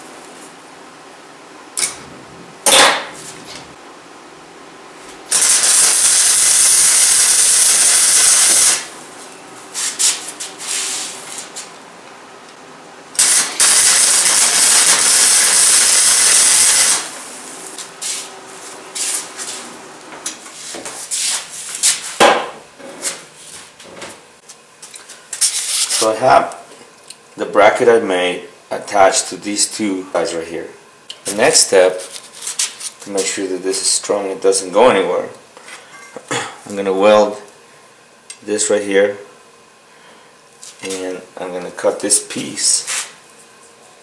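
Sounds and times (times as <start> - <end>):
arc welding hiss: 5.3 - 9.0, 13.1 - 19.6, 25.4 - 26.5.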